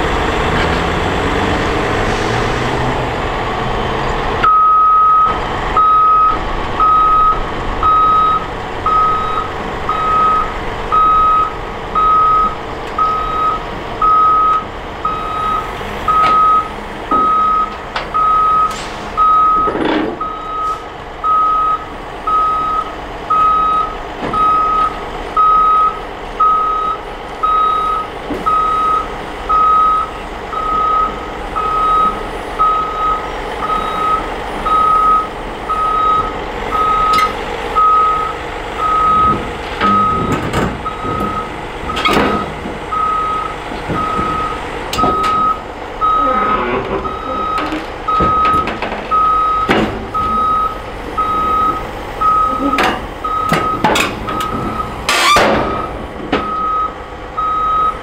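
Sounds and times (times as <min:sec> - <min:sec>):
diesel engine running: 0:00.0 - 0:58.0
excavator travel alarm beeping: 0:04.4 - 0:58.0
loud clunk: 0:52.8 - 0:56.6.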